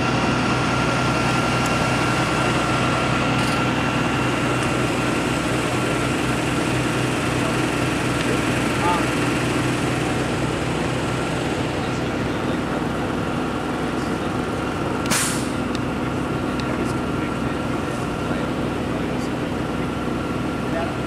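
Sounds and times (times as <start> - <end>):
vehicle engine idling: 0.0 - 21.0
brief sharp noise: 15.1 - 15.6.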